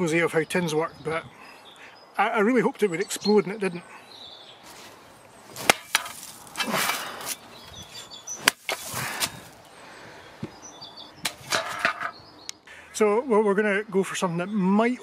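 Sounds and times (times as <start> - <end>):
crunching rustles: 4.6 - 9.7.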